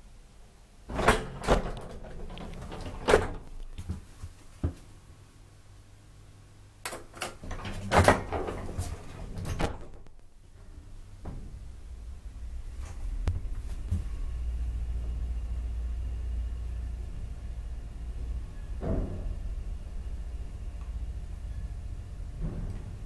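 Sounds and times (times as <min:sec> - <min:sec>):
elevator mechanical clunks: 0:00.9 - 0:03.6.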